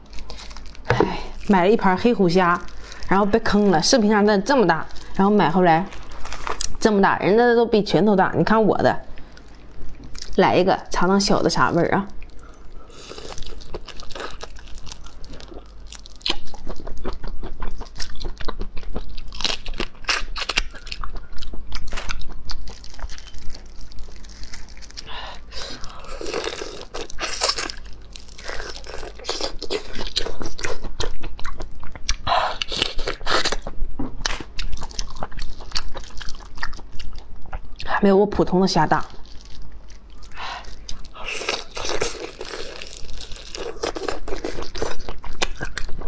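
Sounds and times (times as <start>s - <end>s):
prawn shell crunching: 22.0s - 30.8s, 40.7s - 45.8s.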